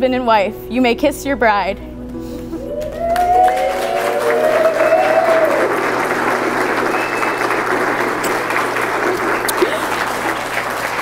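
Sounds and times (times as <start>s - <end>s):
crowd applause: 2.6s - 11.0s.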